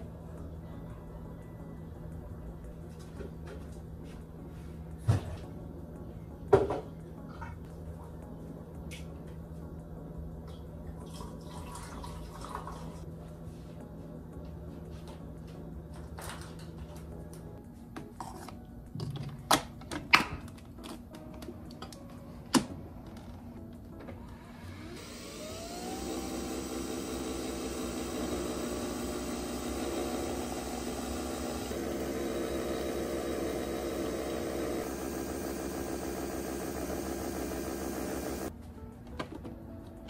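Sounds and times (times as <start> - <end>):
coffee machine motor whirring: 24.2 - 38.5.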